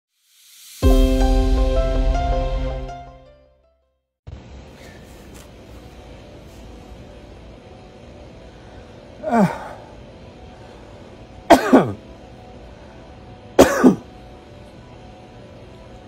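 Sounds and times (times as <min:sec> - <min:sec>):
deep breaths: 0:08.3 - 0:11.3
man coughing: 0:09.2 - 0:09.8, 0:11.5 - 0:12.0, 0:13.6 - 0:14.1.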